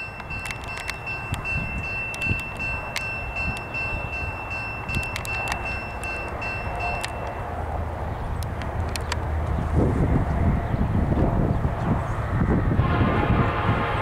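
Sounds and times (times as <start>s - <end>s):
sharp clicks: 0.0s - 7.4s, 8.4s - 9.6s
crossing bell ringing: 0.0s - 7.7s
diesel train rumble: 0.0s - 14.0s.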